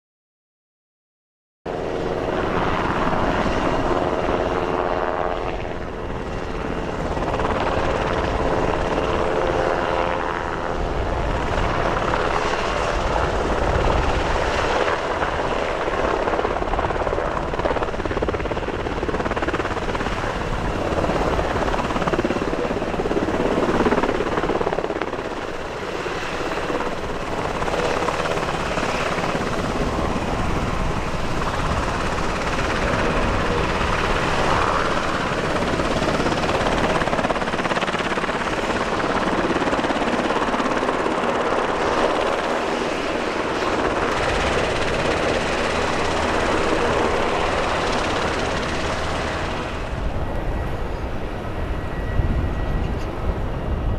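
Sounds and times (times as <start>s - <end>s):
helicopter rotor and engines: 1.7s - 53.9s
multi-tone whine: 43.4s - 53.9s.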